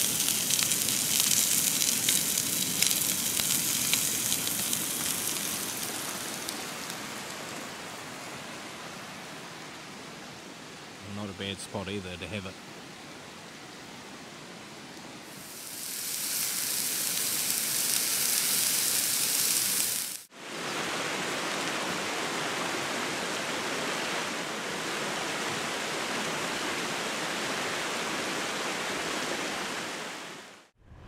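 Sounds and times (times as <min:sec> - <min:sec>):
river running over stones: 0:00.0 - 0:11.0, 0:15.2 - 0:30.6
bright hiss: 0:15.3 - 0:20.3.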